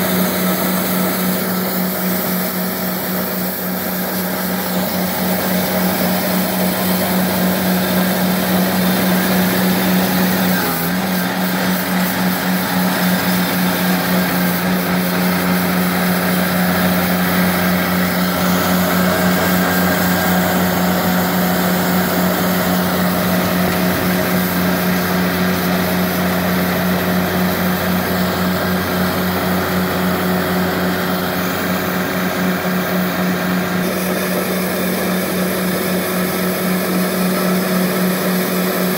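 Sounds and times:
diesel engine running: 0:00.0 - 0:38.9.

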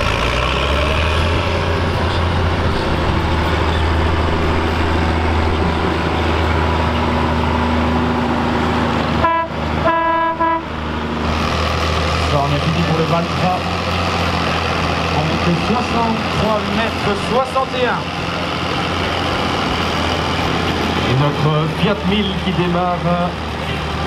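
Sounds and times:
tractor diesel engine running hard: 0:00.0 - 0:24.0
horn toots: 0:09.2 - 0:10.8.

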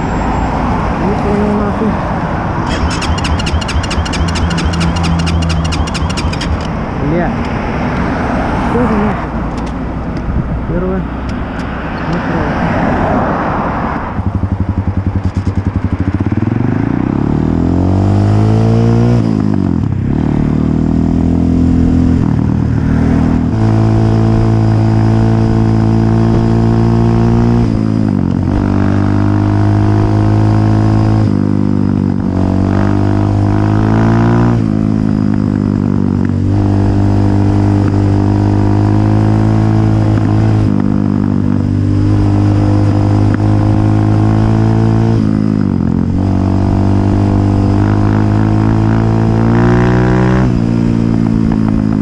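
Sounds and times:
dirt bike engine accelerating: 0:02.6 - 0:07.4.

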